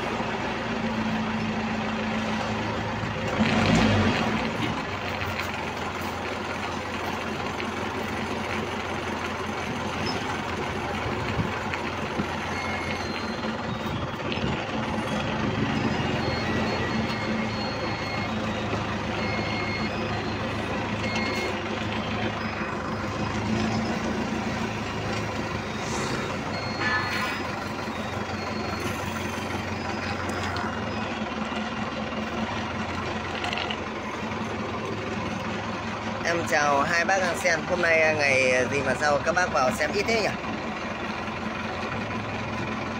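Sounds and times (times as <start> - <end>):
forklift engine running: 0.0 - 42.9
reversing alarm beeps: 9.9 - 32.5.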